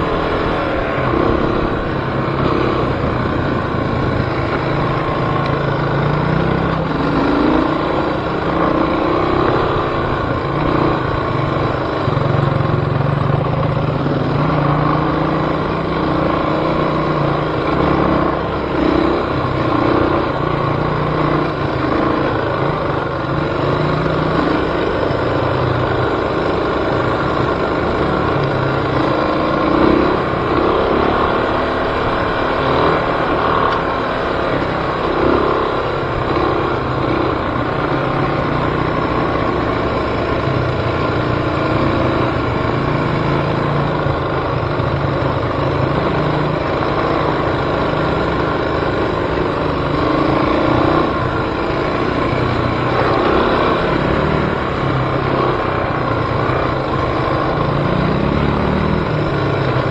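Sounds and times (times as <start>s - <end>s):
off-road vehicle engine revving: 14.0s - 44.7s, 45.3s - 59.9s.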